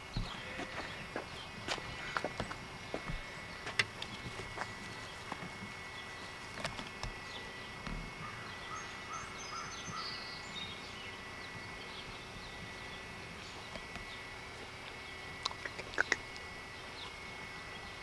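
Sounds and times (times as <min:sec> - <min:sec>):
bird chirps: 0:07.1 - 0:14.3.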